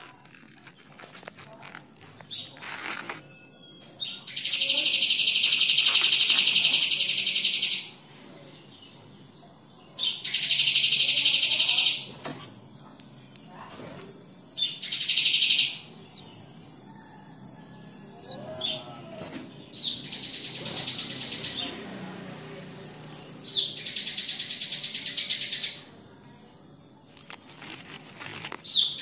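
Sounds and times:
nestlings chirping high-pitched: 0.6 - 8.0, 8.6 - 29.0.

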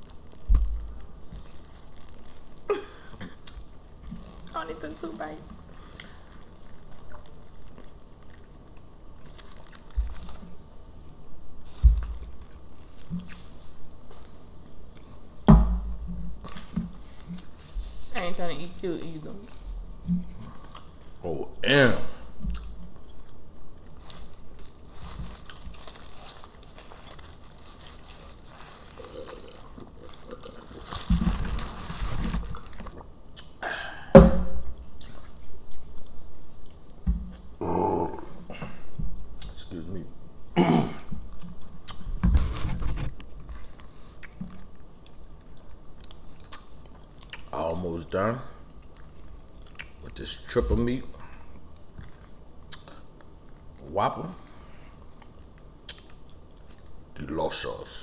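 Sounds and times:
quiet chewing: 0.0 - 15.4, 19.0 - 21.2, 22.4 - 33.6, 43.0 - 47.6, 48.6 - 50.2, 51.2 - 53.8, 54.8 - 57.1
chewing and biting: 5.6 - 10.5, 22.5 - 31.1, 43.2 - 47.5, 51.8 - 53.8
person gulping a drink: 28.8 - 31.2
wet mouth clicks: 46.4 - 47.5, 52.0 - 53.0, 55.4 - 56.2.

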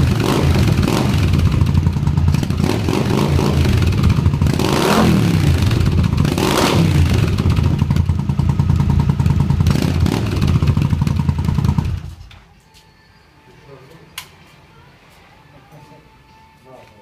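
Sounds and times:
motorcycle engine revving and idling: 0.0 - 12.2.

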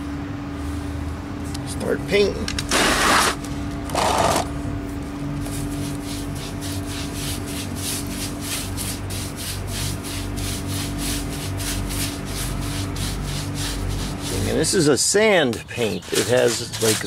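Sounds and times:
paintbrush scraping concrete: 2.7 - 3.4, 5.4 - 17.0.

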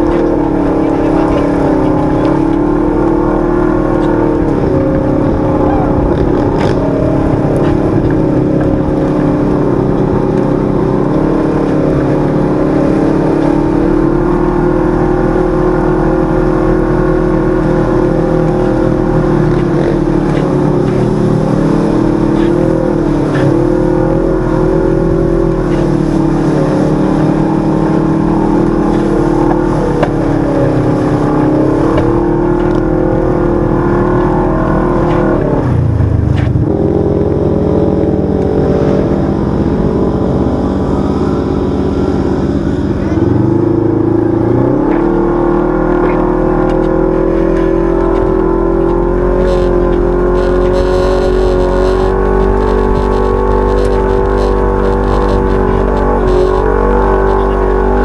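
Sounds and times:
utility vehicle engine running: 0.0 - 58.0.

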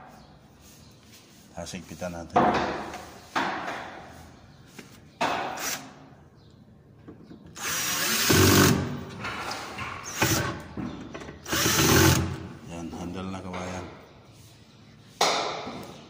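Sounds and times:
power drill driving screws: 7.6 - 9.0, 10.0 - 10.6, 11.4 - 12.4.

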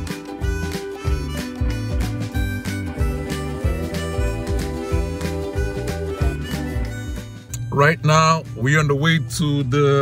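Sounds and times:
music with pulsing bass beat: 0.0 - 7.8.

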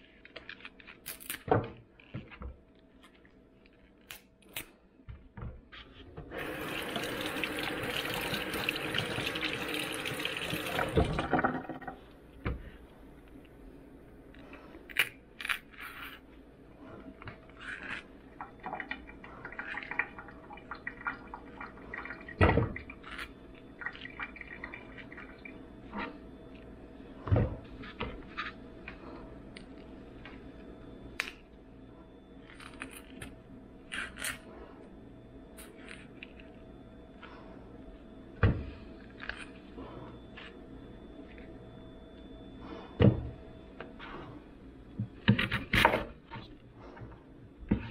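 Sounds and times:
faint steady hum: 0.0 - 47.9
liquid dripping or pouring: 6.4 - 12.0, 18.4 - 23.0, 23.8 - 25.5.

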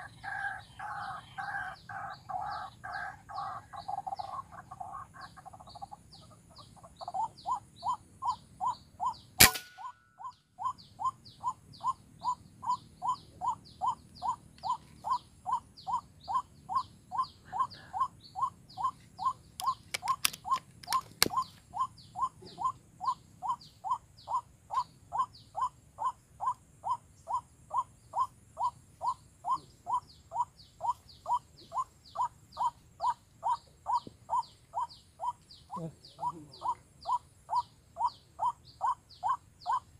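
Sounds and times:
sharp crack: 9.4 - 10.0.

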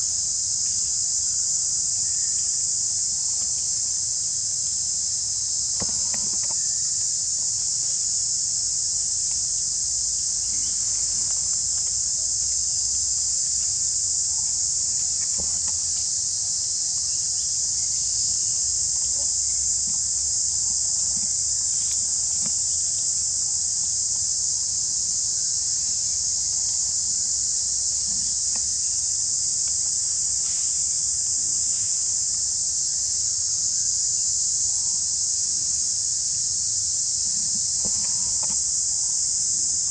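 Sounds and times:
insect chorus buzzing: 0.0 - 39.9
faint clicks: 37.5 - 38.8.

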